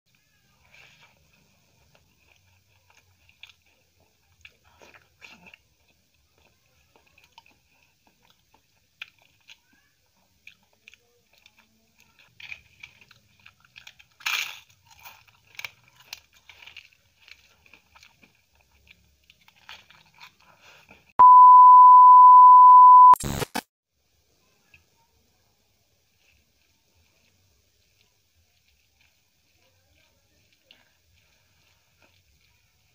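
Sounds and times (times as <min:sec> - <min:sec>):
wet chewing: 0:00.2 - 0:21.1, 0:26.2 - 0:32.9
test tone beep: 0:21.2 - 0:23.6
burst of static: 0:22.7 - 0:23.6.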